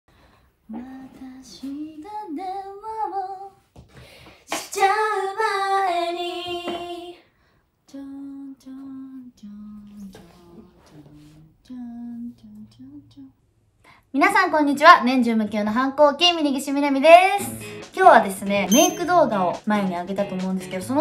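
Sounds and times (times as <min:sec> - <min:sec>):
woman singing unaccompanied: 0:00.7 - 0:03.6, 0:04.7 - 0:07.2, 0:07.9 - 0:13.4.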